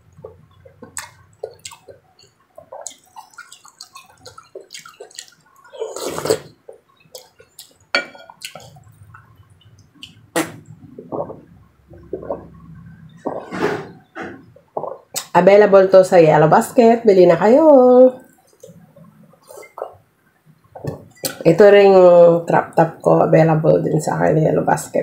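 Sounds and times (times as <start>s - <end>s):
wet chewing mouth sounds: 0.1s - 12.6s
slurp: 2.8s - 6.5s.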